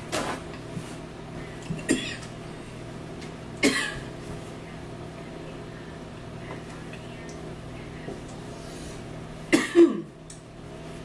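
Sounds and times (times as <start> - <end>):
faint steady hum: 0.0 - 11.0
person coughing: 1.8 - 2.3, 3.6 - 4.1, 9.5 - 10.2.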